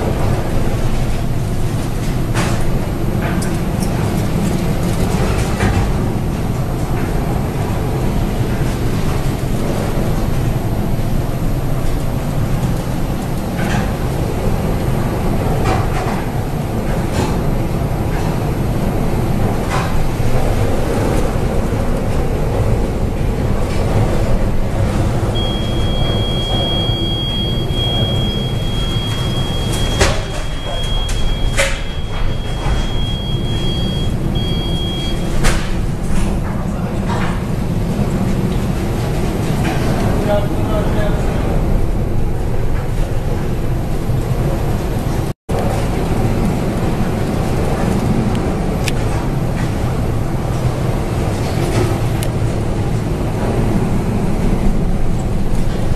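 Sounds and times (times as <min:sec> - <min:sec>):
storm wind rumbling: 0:00.0 - 0:29.9
heavy sea: 0:00.0 - 0:55.9.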